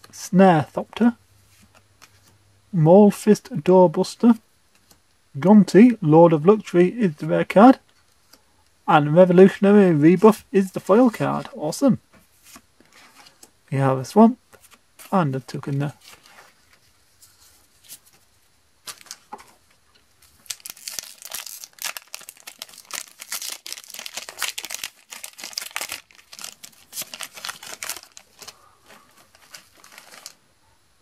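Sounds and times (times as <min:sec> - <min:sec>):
foil wrapper tearing and crinkling: 0:20.3 - 0:30.4.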